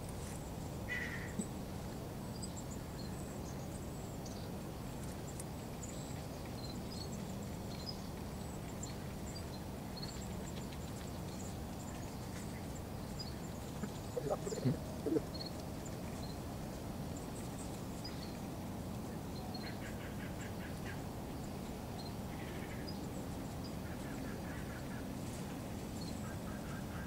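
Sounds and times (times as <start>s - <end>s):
small birds chirping: 2.2s - 27.0s
steady low rumble: 13.3s - 15.3s.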